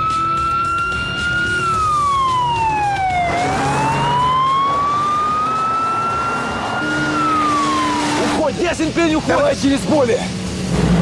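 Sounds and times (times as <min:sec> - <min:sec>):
siren wailing: 0:00.0 - 0:08.4
speeding cars: 0:00.1 - 0:11.0.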